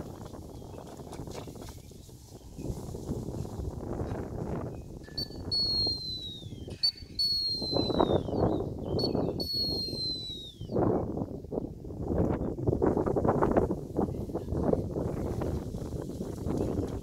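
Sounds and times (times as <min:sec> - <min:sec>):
wind rumble on microphone: 0:00.0 - 0:17.0
dog training whistle: 0:05.2 - 0:10.8.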